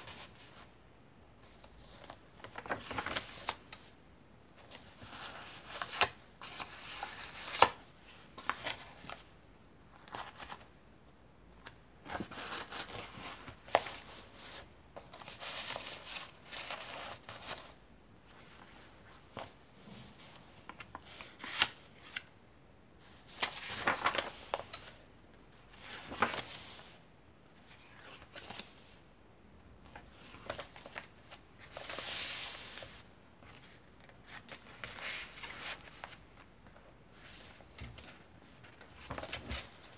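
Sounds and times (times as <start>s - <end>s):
pages rustling and swishing: 25.8s - 27.0s, 29.9s - 36.2s.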